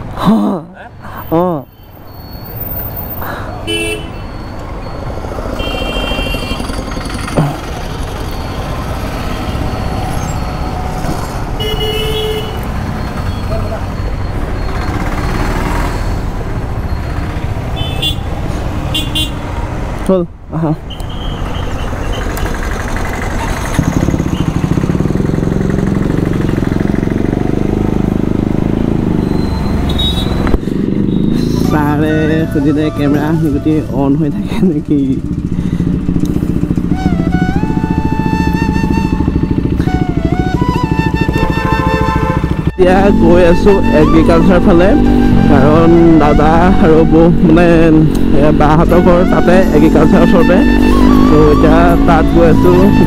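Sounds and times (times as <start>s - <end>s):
road traffic rumbling: 0.0s - 53.0s
vehicle horns honking: 3.6s - 4.5s, 5.5s - 6.8s, 11.4s - 13.9s, 17.3s - 19.5s, 29.2s - 33.2s, 38.9s - 47.3s
vehicle engine running: 4.8s - 17.8s, 21.8s - 53.0s.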